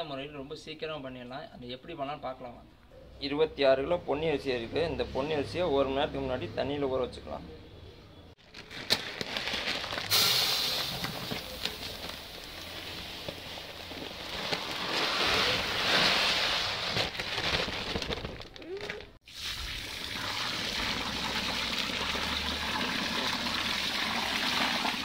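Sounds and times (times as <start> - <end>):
rice pouring into steel bowl: 9.5 - 17.0
water pouring onto rice: 19.3 - 25.0.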